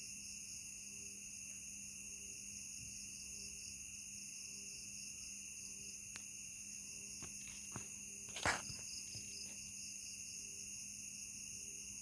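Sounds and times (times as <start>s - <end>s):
night insects shrilling: 3.5s - 11.9s.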